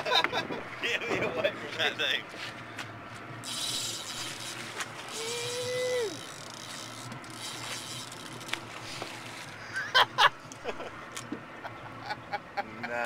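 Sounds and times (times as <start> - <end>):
fishing reel drag buzzing: 3.4 - 9.6
person whooping: 5.1 - 6.3.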